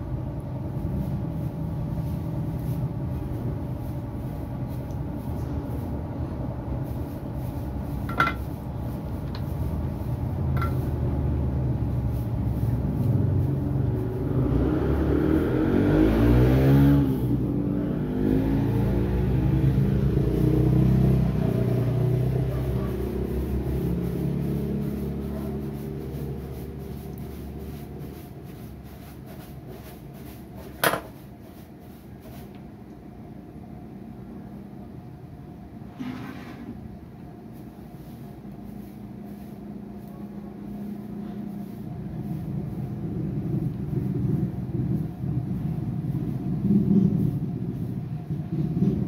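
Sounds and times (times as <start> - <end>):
vehicle engine passing: 7.8 - 30.4, 40.7 - 49.0.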